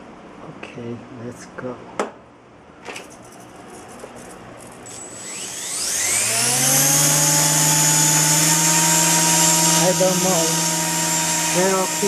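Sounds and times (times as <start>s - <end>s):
rc helicopter motor whine: 4.9s - 12.0s.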